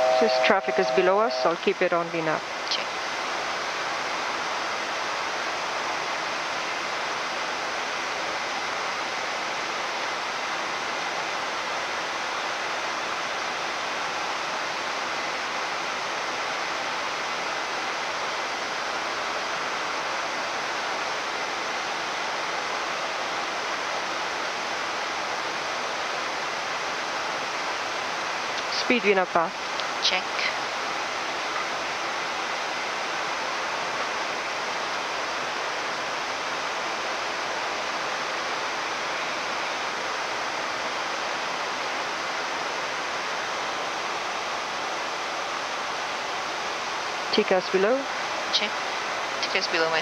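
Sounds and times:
faint high steady tone: 0:00.0 - 0:03.0.

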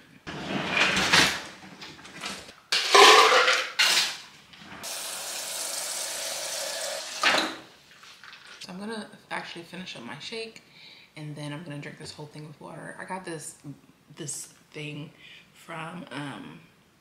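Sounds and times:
clattering and rattling handling: 0:00.3 - 0:04.2.

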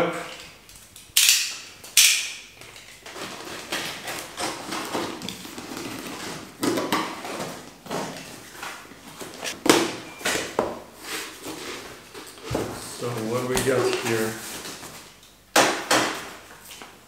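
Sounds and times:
cardboard scraping and rustling: 0:03.0 - 0:09.7, 0:11.0 - 0:15.2.

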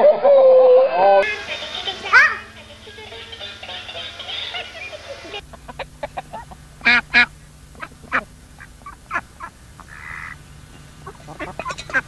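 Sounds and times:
toy electronic tune: 0:01.2 - 0:05.4
ducks quacking: 0:01.2 - 0:12.0.

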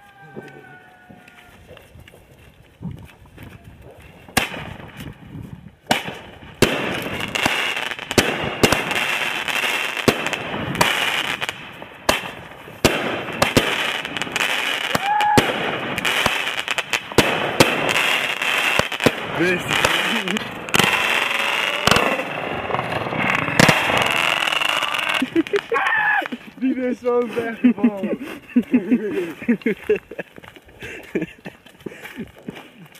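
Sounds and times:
fireworks bangs: 0:03.8 - 0:05.1, 0:05.8 - 0:27.2.

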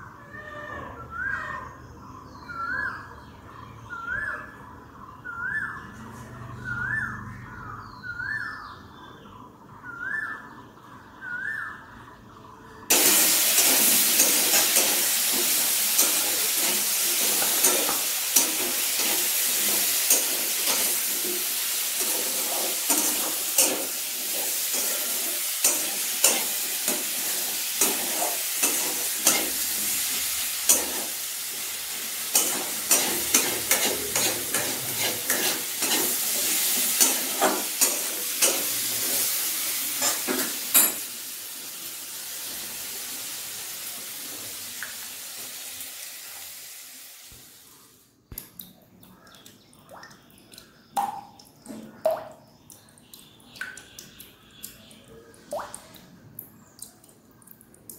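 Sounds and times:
sizzling hiss with crackles: 0:12.9 - 0:48.0.

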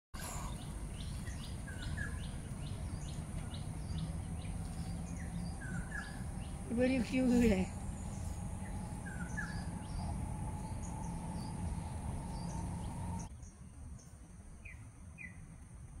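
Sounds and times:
low rumble: 0:00.2 - 0:13.3
high insect drone: 0:03.6 - 0:13.3.

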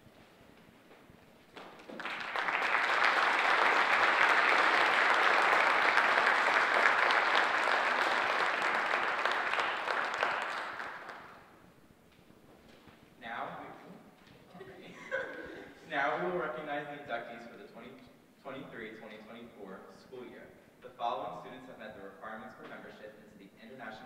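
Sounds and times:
audience applause: 0:01.6 - 0:11.5.

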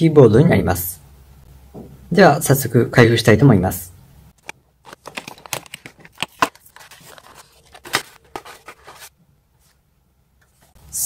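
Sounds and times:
plastic packaging crinkling and tearing: 0:04.4 - 0:09.1.

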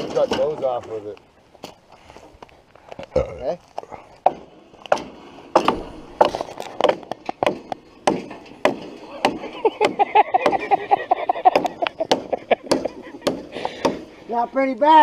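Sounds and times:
hatchet chopping wood: 0:04.2 - 0:10.6, 0:11.5 - 0:14.1.

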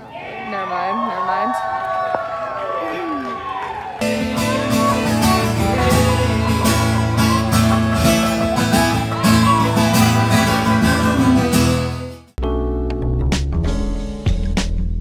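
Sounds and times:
live band playing: 0:04.0 - 0:12.2
acoustic guitar strumming: 0:04.0 - 0:12.3.

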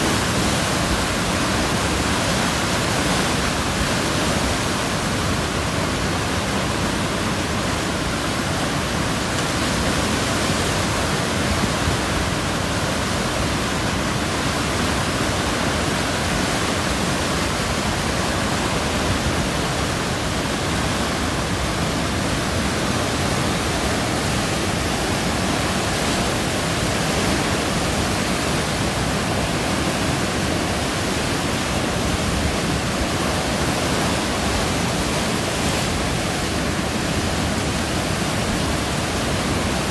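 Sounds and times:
water rushing over a dam: 0:00.0 - 0:39.9.

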